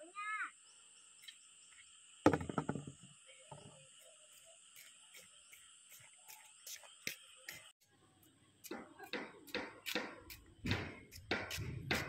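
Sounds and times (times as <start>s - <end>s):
insects droning: 0.0s - 12.0s
small knock: 2.3s - 3.7s.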